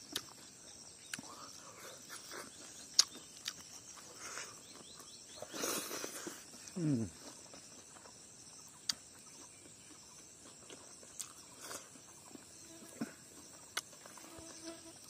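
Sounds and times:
insects chirring: 0:00.0 - 0:15.0
chewing clicks: 0:00.1 - 0:00.4, 0:02.6 - 0:05.2, 0:07.2 - 0:12.5, 0:13.4 - 0:14.6.

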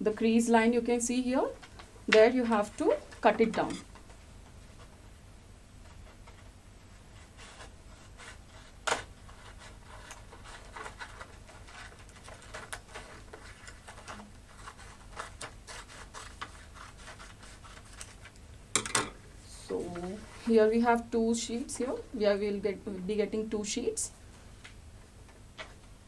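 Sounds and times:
paper rustling: 0:05.9 - 0:18.4.

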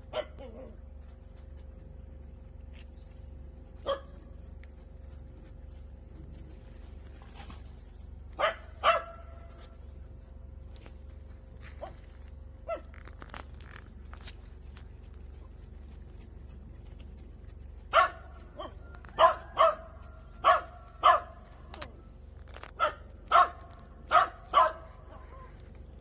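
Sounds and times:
dog barking: 0:00.0 - 0:00.8, 0:03.8 - 0:04.2, 0:08.4 - 0:09.6, 0:12.6 - 0:13.0, 0:17.9 - 0:21.8, 0:22.8 - 0:25.5.

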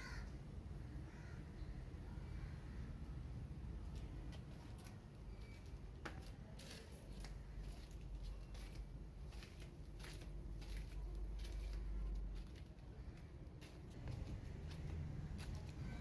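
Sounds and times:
footsteps scuffing on concrete: 0:03.9 - 0:16.0.

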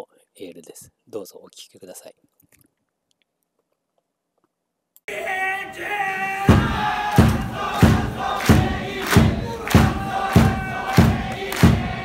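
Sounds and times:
heavy drum beat: 0:06.4 - 0:12.0
men singing in unison: 0:06.4 - 0:12.0.

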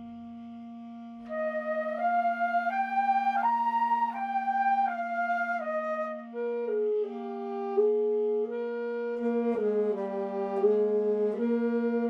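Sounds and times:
wind band playing: 0:00.9 - 0:12.0.

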